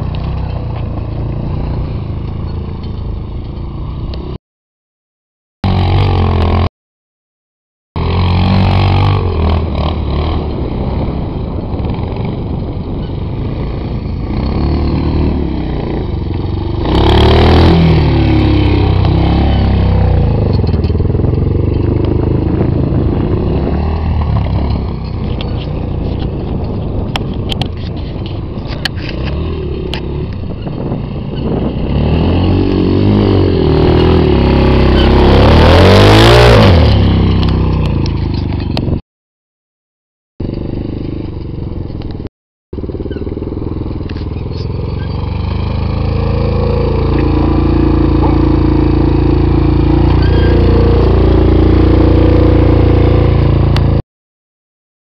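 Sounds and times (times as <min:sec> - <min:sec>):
quad bike engine revving: 0:05.6 - 0:06.7, 0:08.0 - 0:39.0, 0:40.4 - 0:54.0.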